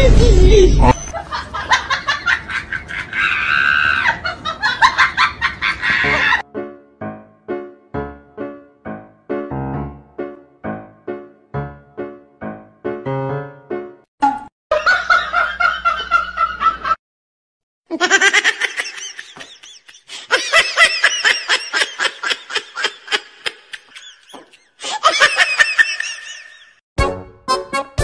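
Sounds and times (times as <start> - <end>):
person laughing: 0.5 - 6.4, 17.9 - 26.7.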